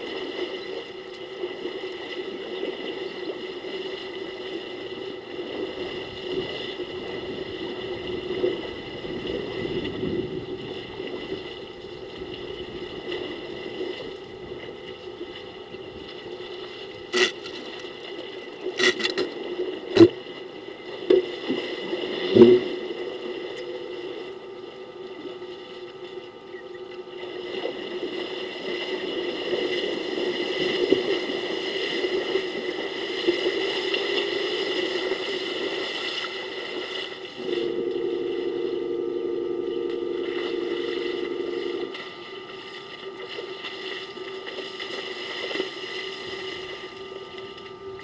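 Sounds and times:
steady hum: 0.0s - 48.0s
water sloshing: 25.2s - 48.0s.

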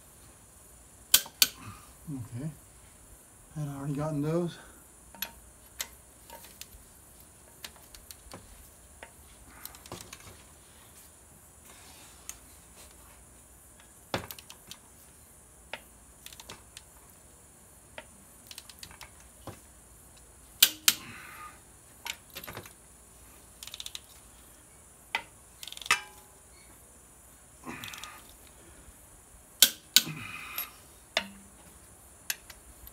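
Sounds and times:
metal socket clinking: 20.6s - 21.0s
torque wrench ratchet clicks: 20.6s - 21.1s, 23.6s - 24.0s, 25.6s - 26.0s.

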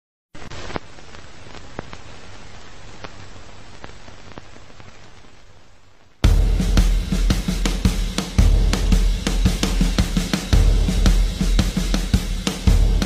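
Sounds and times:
crackling static: 0.3s - 13.0s
music with drums and bass: 6.2s - 13.0s.

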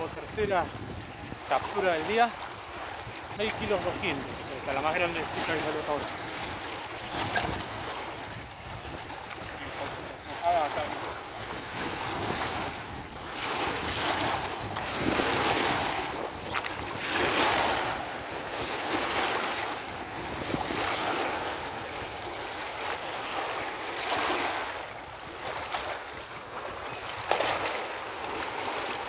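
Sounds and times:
wind buffeting microphone: 0.0s - 22.5s
small waves washing onto rocks: 0.0s - 29.0s.

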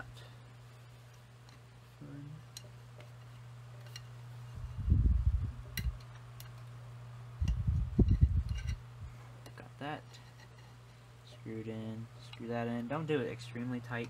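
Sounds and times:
steady low hum: 0.0s - 14.0s
dull rumble of handling: 7.2s - 9.4s.

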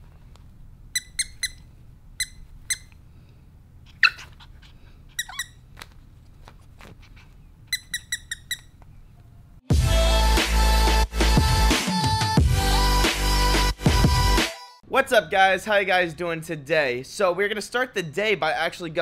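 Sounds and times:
squeaky toy squeaking: 0.9s - 3.0s, 3.9s - 4.5s, 5.1s - 5.7s, 7.6s - 8.8s.

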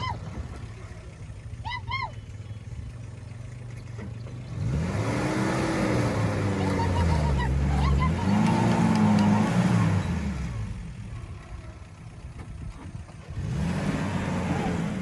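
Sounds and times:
engine revving under load: 3.0s - 11.2s, 13.1s - 15.0s.

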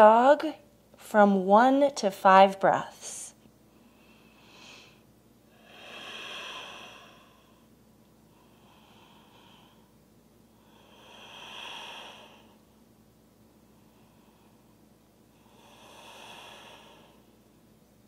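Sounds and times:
woman breathing slowly: 3.6s - 12.8s, 13.5s - 17.8s.

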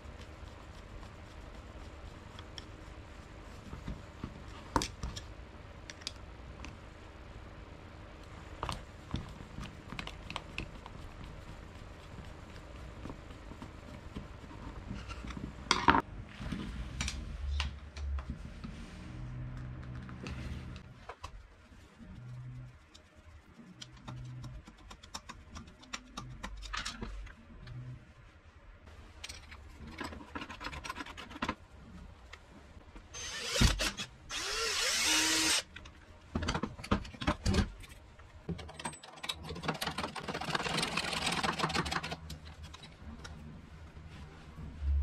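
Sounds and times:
cordless drill whining: 33.2s - 35.6s.

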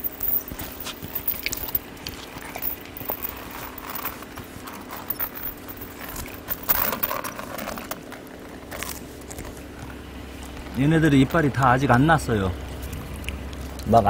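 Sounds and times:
dogs chewing and smacking: 12.7s - 14.0s.

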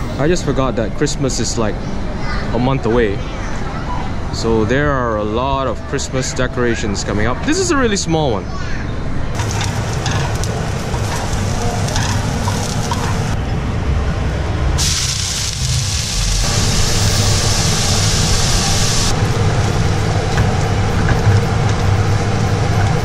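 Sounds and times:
steady low rumble: 9.1s - 23.0s
food sizzling in hot oil: 9.4s - 13.4s, 14.8s - 19.2s.

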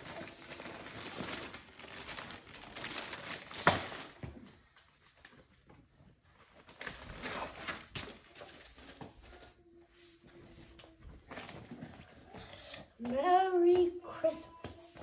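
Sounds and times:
presents and sack rustling: 0.0s - 9.5s.

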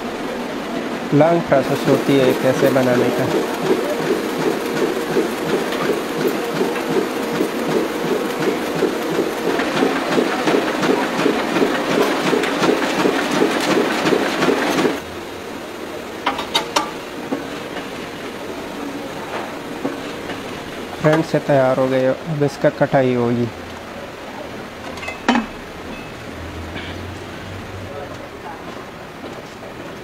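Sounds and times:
machine low hum: 0.0s - 21.2s
machinery fast mechanical beat: 1.1s - 15.0s.

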